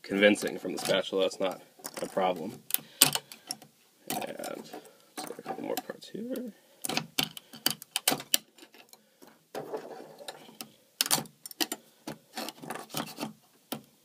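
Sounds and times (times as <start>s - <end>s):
metal spatula prying plastic parts: 9.6s - 13.9s.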